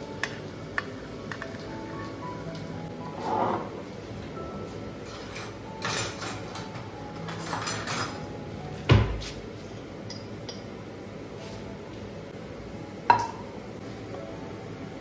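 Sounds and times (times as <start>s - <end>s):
cutlery rattling in drawer: 5.1s - 8.2s
drawer knocking shut: 8.9s - 9.2s.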